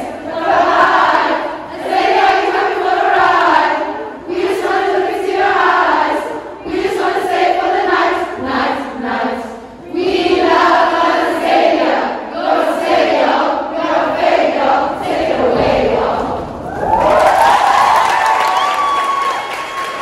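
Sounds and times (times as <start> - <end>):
women singing together: 0.0 - 16.7
people clapping: 16.6 - 20.0.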